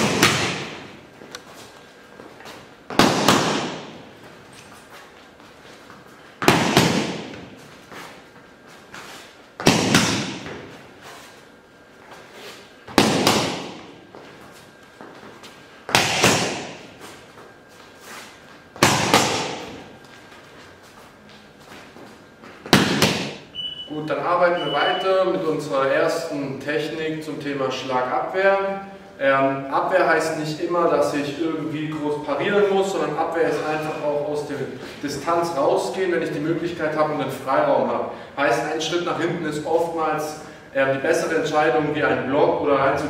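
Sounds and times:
boxing glove punches thudding: 2.9 - 4.0, 6.4 - 7.5.

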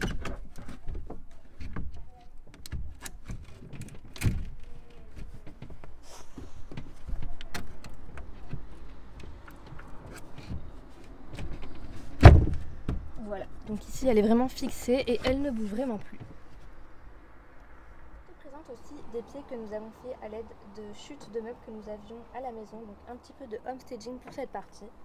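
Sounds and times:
wooden board knocks and scrapes: 0.0 - 13.2
heavy thud of board dropping: 11.4 - 13.1.

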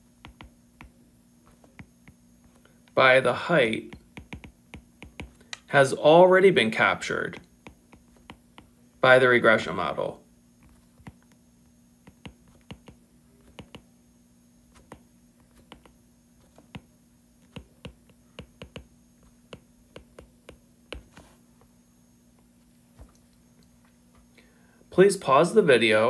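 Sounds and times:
stylus tapping on tablet screen: 0.0 - 1.0, 1.6 - 2.6, 3.9 - 5.7, 7.4 - 8.8, 10.6 - 11.4, 12.0 - 13.9, 14.8 - 21.2
faint low hum: 0.0 - 26.0.

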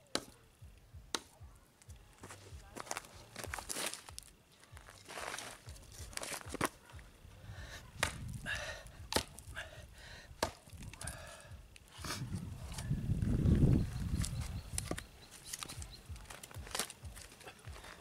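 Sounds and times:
knife chopping wood: 0.1 - 0.4, 1.1 - 1.4, 8.0 - 8.3, 9.1 - 9.4, 10.4 - 10.8.

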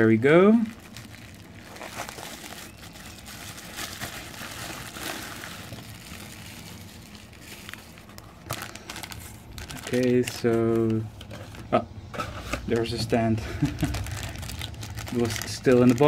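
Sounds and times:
bubble wrap and plastic bag crinkling: 0.0 - 11.8, 12.6 - 16.0.

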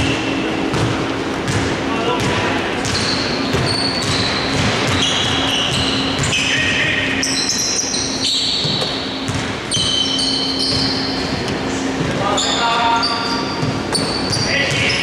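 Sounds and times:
shoes squeaking on hardwood court: 0.0 - 15.0
steady low hum: 0.0 - 15.0
basketball bouncing: 0.7 - 6.6, 8.5 - 12.2, 13.6 - 15.0.

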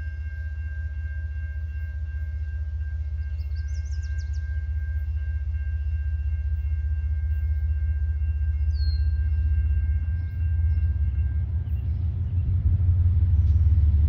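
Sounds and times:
diesel locomotives rumbling: 0.0 - 14.0
bird chirping: 3.2 - 5.2, 8.5 - 12.6.

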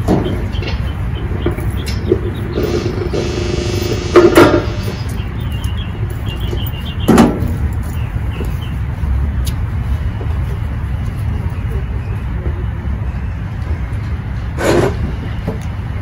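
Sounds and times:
low outdoor rumble: 0.0 - 16.0
humming tone: 1.8 - 5.4.

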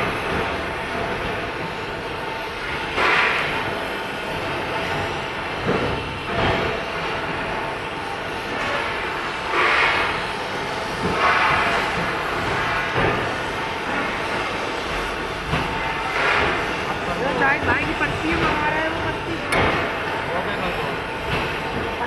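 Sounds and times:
welding torch flame hissing: 0.0 - 22.0.

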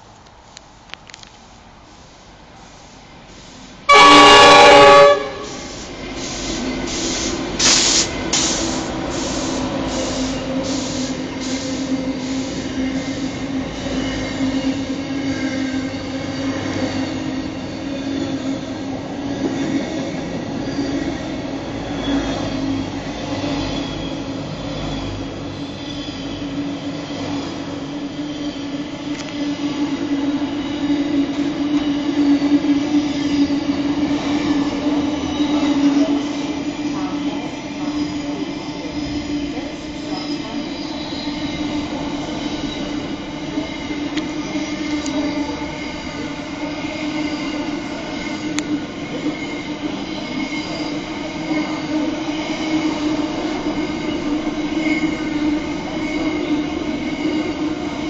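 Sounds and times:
train rumble with droning tone: 0.0 - 58.0
locomotive horn blast: 3.9 - 5.7
train clattering over rails: 3.9 - 58.0.

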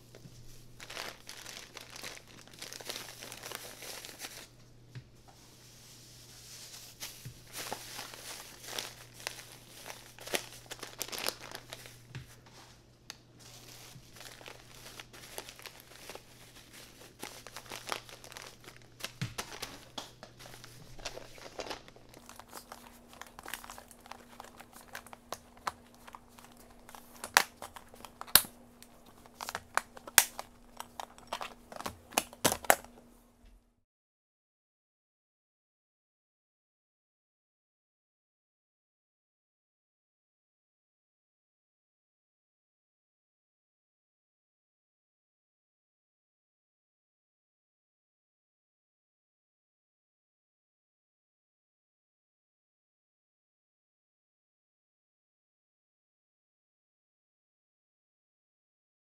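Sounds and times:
plastic snack packets crinkling: 0.1 - 4.6, 6.6 - 12.5, 13.4 - 33.1.

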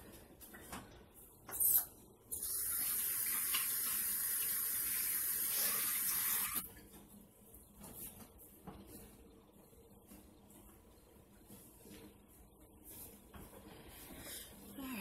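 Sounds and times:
faucet water running: 2.3 - 6.7.

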